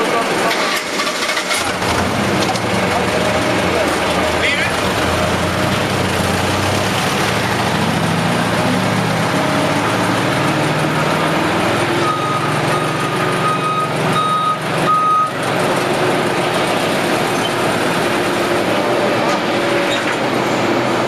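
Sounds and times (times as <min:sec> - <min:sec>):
vehicle engines rumbling: 0:00.0 - 0:21.0
reversing alarm beeping: 0:12.0 - 0:15.4.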